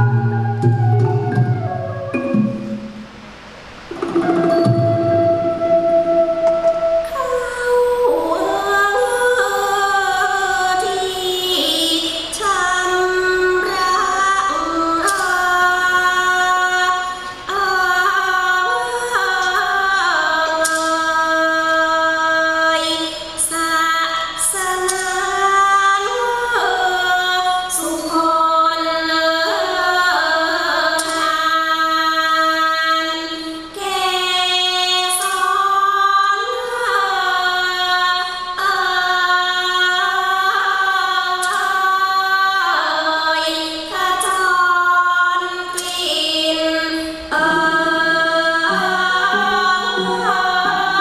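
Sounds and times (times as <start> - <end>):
traditional percussion ensemble: 0.0 - 8.6, 47.0 - 51.0
woman singing: 4.2 - 51.0.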